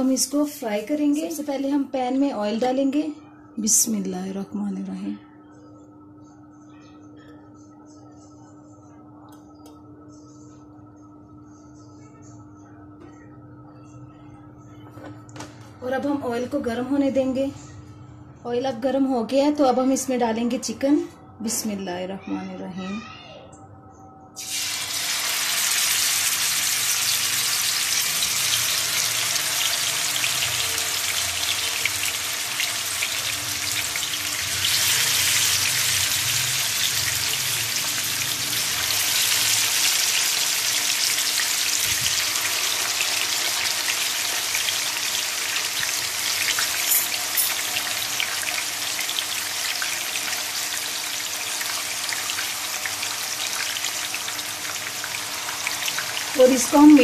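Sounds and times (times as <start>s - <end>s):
chicken sizzling in hot oil: 24.4s - 57.0s.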